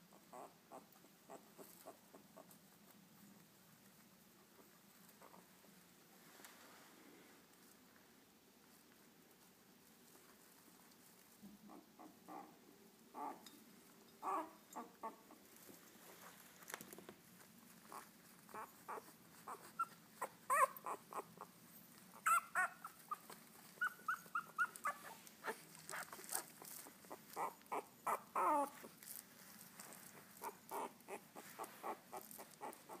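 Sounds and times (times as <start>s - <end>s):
puppies squeaking and whimpering: 14.2s - 15.4s, 17.9s - 21.4s, 22.1s - 28.9s, 29.8s - 33.0s.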